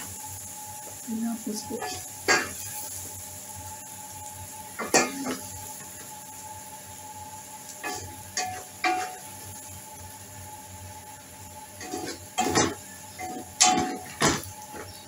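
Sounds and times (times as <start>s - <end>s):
spatula scraping a metal pot: 11.8s - 12.2s.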